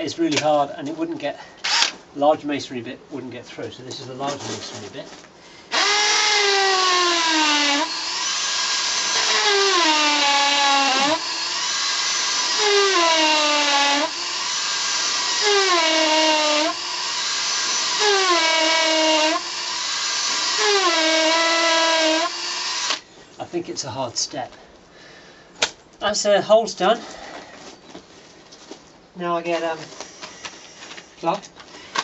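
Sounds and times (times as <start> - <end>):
hammer drill boring into concrete: 1.6 - 1.9, 5.7 - 23.0.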